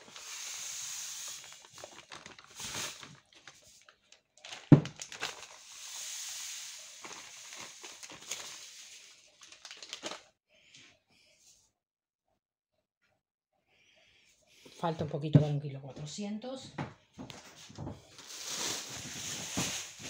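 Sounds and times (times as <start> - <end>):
sugar pouring into plastic jug: 0.0 - 3.8, 4.4 - 10.2
plastic bag crinkling: 0.0 - 10.3, 17.4 - 20.0.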